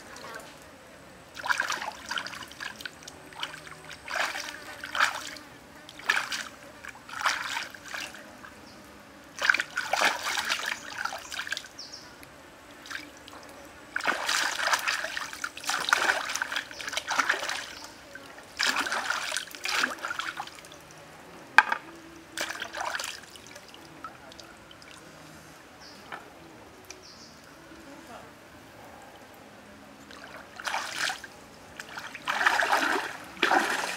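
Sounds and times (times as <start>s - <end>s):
stream trickling: 0.0s - 28.3s, 29.1s - 33.9s
water splashing and sloshing: 1.3s - 8.5s, 9.3s - 11.7s, 12.7s - 21.0s, 21.6s - 25.1s, 30.0s - 33.9s.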